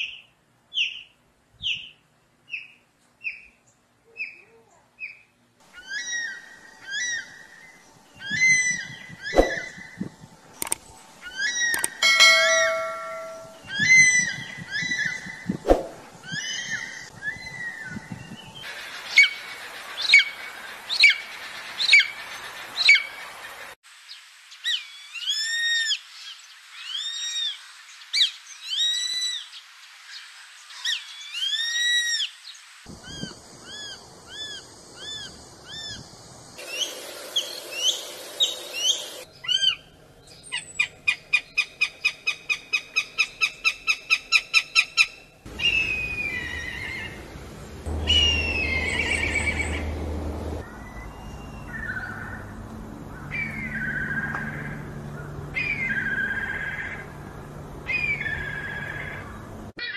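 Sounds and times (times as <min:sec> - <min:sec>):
birds of prey calling: 0:05.0 - 0:19.4, 0:32.9 - 0:47.3, 0:47.9 - 0:52.5, 0:53.1 - 0:57.2, 0:57.8 - 0:59.9.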